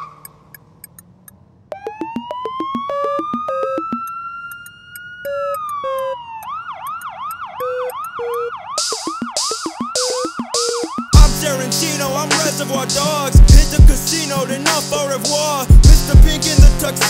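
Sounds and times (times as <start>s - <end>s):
police-style siren wail and yelp: 0.0s - 0.4s, 1.7s - 16.8s
ticking percussion: 0.0s - 6.1s.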